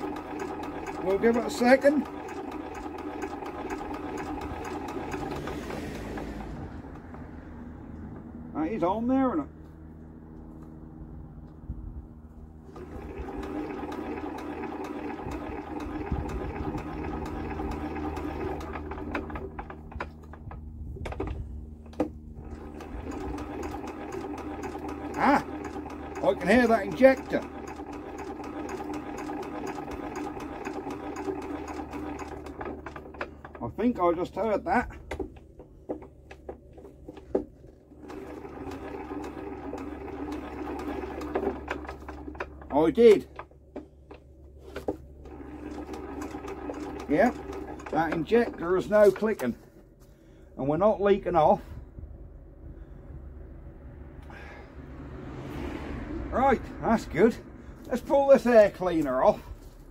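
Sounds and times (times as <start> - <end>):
diesel engine turning over: 0.0 - 59.9.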